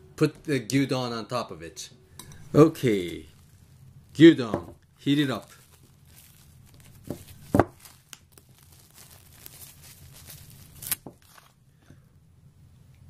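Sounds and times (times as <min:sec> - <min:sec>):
packaging crackling: 0:02.8 - 0:11.6
plastic pouch rustling: 0:02.8 - 0:11.6.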